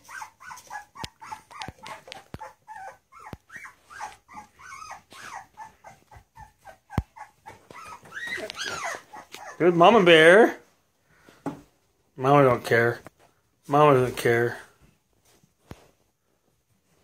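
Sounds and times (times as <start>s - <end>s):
puppies whimpering and squeaking: 0.0s - 10.3s.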